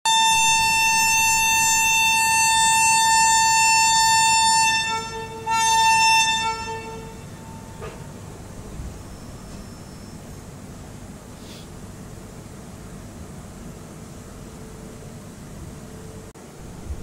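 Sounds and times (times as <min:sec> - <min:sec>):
locomotive air horn blast: 0:00.0 - 0:08.1.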